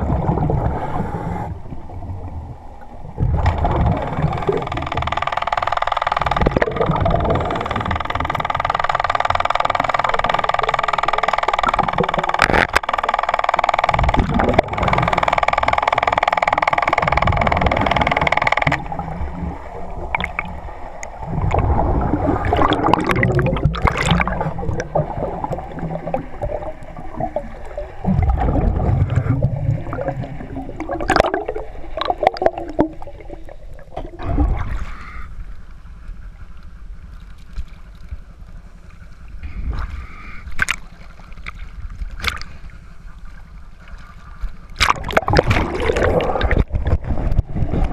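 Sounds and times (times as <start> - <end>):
bubbling: 0.0 - 1.1, 6.3 - 8.4, 13.9 - 15.2, 16.5 - 34.8, 44.8 - 47.9
water gurgling and rushing: 0.0 - 35.0, 44.7 - 47.9.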